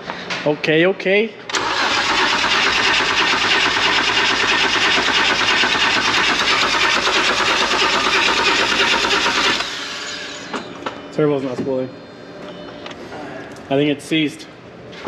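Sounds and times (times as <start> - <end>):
engine cranking on starter motor: 1.5 - 9.7.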